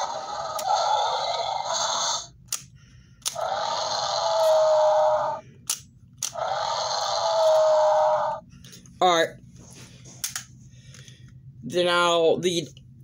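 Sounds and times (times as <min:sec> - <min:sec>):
electronic toy roar: 0:00.0 - 0:02.4, 0:03.3 - 0:05.5, 0:06.2 - 0:08.4.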